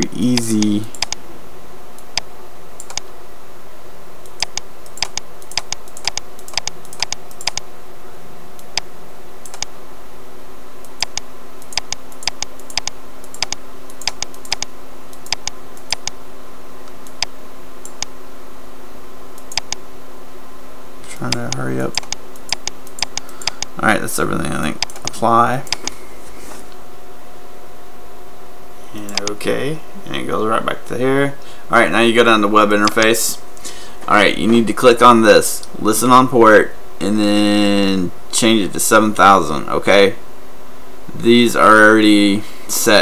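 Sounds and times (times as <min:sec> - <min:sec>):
steady hum: 0:00.0 - 0:43.0
computer mouse clicking: 0:00.3 - 0:01.2, 0:02.0 - 0:03.1, 0:04.2 - 0:07.7, 0:08.6 - 0:09.7, 0:10.8 - 0:16.2, 0:16.8 - 0:18.1, 0:19.4 - 0:19.8, 0:21.3 - 0:23.7, 0:24.8 - 0:26.0, 0:29.1 - 0:29.4.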